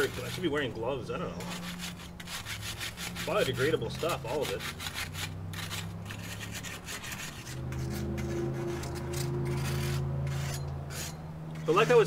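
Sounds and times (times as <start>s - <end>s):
grill stone scrubbing grill grates: 0.0s - 12.0s.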